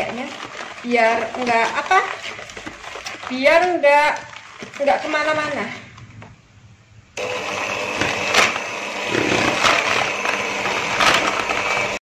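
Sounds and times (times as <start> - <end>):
electric hand mixer running: 7.2 - 12.0.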